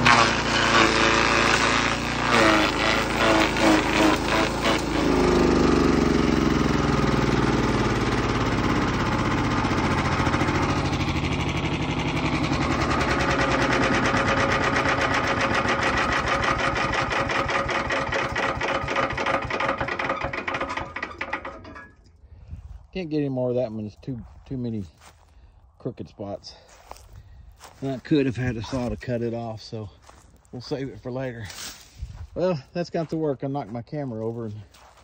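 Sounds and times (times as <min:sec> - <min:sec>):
small gas engine running: 0:00.0 - 0:22.8.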